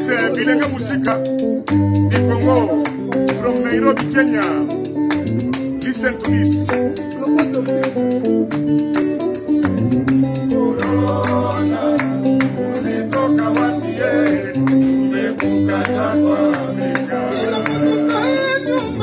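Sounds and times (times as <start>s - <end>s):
bass line: 0.0s - 19.0s
guitar: 0.0s - 19.0s
percussion beat: 0.0s - 19.0s
voices singing: 9.7s - 19.0s.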